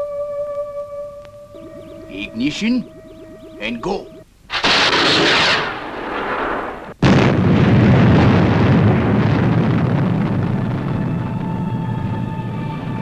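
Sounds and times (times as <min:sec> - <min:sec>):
rocket launching hiss: 0:04.5 - 0:07.0
deep rumbling explosion: 0:04.5 - 0:13.0.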